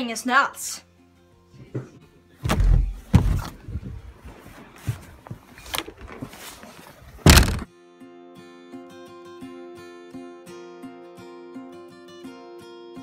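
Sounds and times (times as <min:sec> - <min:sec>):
door knocks and thuds: 0:02.4 - 0:03.6, 0:07.2 - 0:07.7
phone handling noise: 0:07.2 - 0:07.7.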